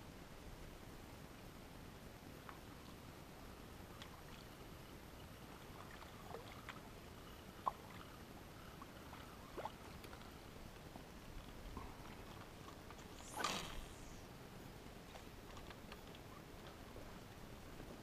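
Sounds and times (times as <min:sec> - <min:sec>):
water lapping: 0:05.3 - 0:10.6.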